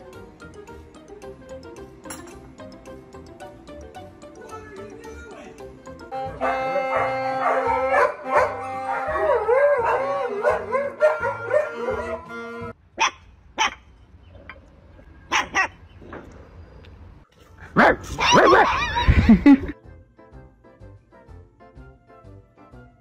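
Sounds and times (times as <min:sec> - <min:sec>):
music: 0:00.0 - 0:12.8, 0:18.9 - 0:23.0
puppies yapping: 0:06.4 - 0:12.3, 0:15.3 - 0:15.8, 0:17.8 - 0:19.3.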